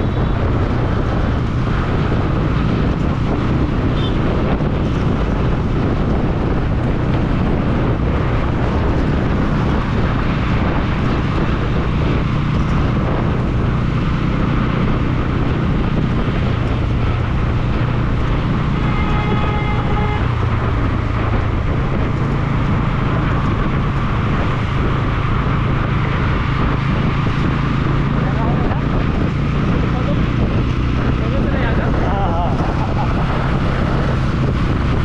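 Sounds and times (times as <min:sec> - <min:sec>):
motorcycle engine running: 0:00.0 - 0:35.0
road noise: 0:00.0 - 0:35.0
vehicle horn: 0:03.9 - 0:04.2, 0:18.7 - 0:20.5.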